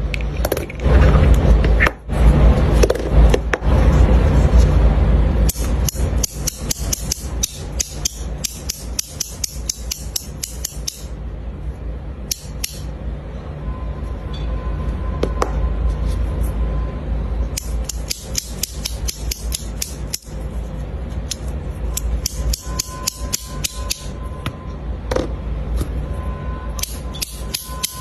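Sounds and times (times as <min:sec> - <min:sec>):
low rumbling of metal discs: 0:00.0 - 0:28.0
sharp metallic clicks: 0:05.4 - 0:11.1, 0:12.2 - 0:12.9, 0:17.5 - 0:20.4, 0:21.2 - 0:24.2, 0:26.8 - 0:28.0.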